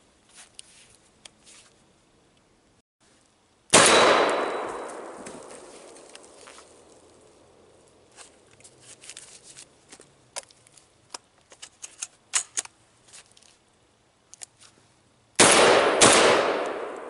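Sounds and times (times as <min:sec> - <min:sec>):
shotgun blasts with echo: 0:03.7 - 0:06.3, 0:15.4 - 0:17.0
gun being handled clicks: 0:10.4 - 0:12.8.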